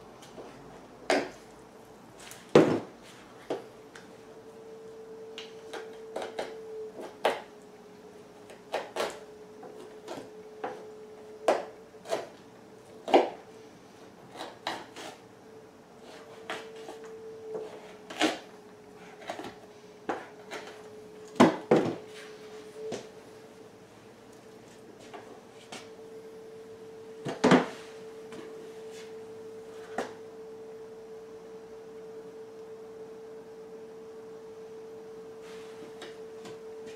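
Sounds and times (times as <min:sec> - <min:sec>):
steady hum: 0:00.0 - 0:36.9
knife scraping a pelt: 0:12.0 - 0:12.4, 0:14.3 - 0:15.2.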